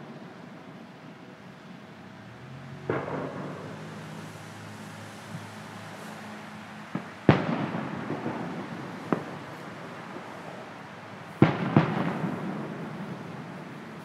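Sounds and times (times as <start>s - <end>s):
firework crack: 2.8s - 14.0s
fireworks booming: 2.8s - 14.0s.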